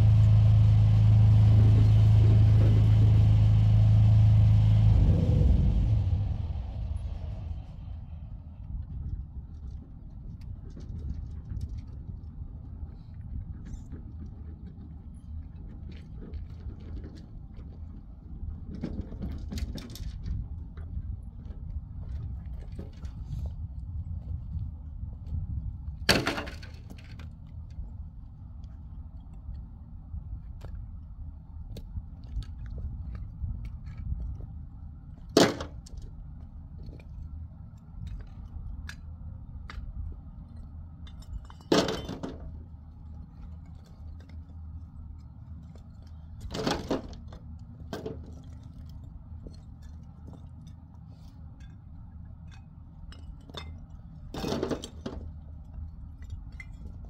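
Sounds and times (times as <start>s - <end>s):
low rumble: 0.0s - 50.5s
rubble tossed into metal wheelbarrow: 26.1s - 27.2s, 41.2s - 42.5s.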